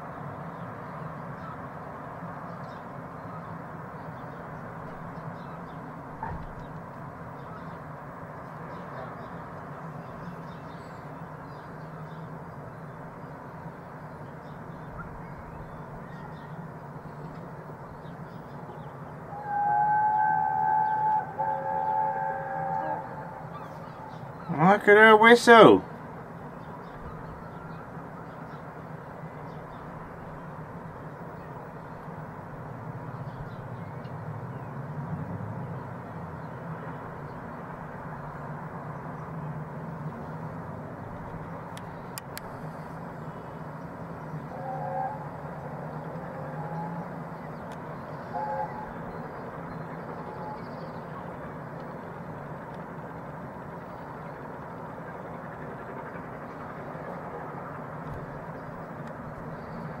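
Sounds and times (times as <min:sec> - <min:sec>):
distant steam locomotive rumble: 0:00.0 - 1:00.0
brief tones: 0:19.4 - 0:24.3.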